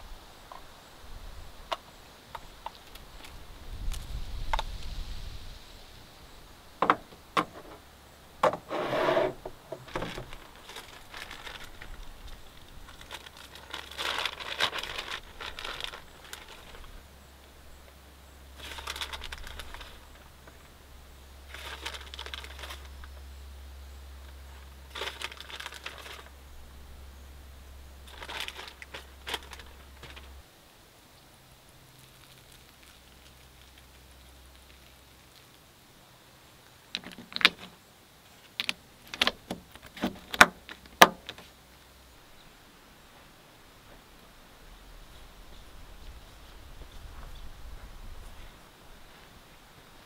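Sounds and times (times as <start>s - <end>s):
items knocking on wood: 6.8s - 7.8s, 8.4s - 10.4s
plastic packaging crinkling: 9.8s - 17.0s, 18.6s - 20.4s, 21.5s - 23.1s, 24.6s - 26.4s, 28.0s - 30.4s.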